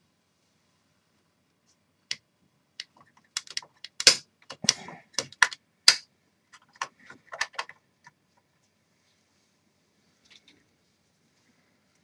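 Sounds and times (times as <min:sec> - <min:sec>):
fingers clicking and tapping: 0:02.8 - 0:06.0, 0:06.6 - 0:07.8.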